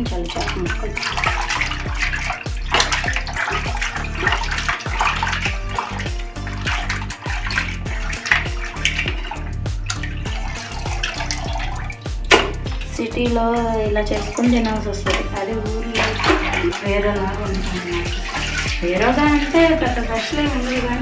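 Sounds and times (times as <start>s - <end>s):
background music with bass: 0.0s - 21.0s
water sloshing in plastic basin: 0.0s - 21.0s.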